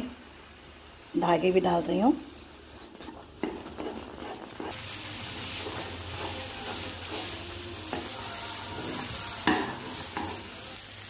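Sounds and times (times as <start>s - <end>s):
food sizzling in a pan: 0.0s - 11.0s
metal spoon stirring and scraping: 2.8s - 10.6s.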